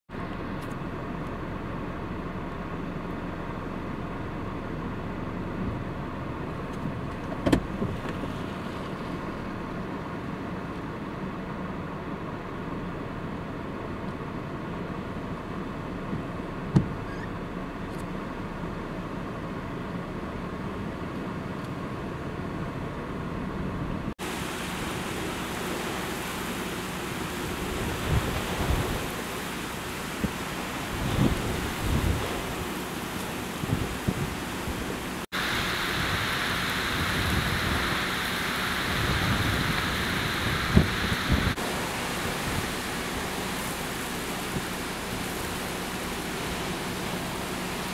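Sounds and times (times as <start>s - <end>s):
heavy wind-driven rain hissing: 0.3s - 11.5s, 23.6s - 47.9s
wind gusts buffeting microphone: 23.9s - 47.9s.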